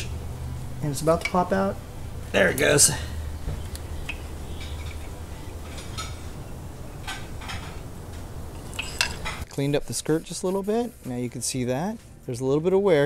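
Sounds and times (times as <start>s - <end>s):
low hum: 0.0s - 9.5s
metal clinks and scrapes: 8.5s - 9.5s.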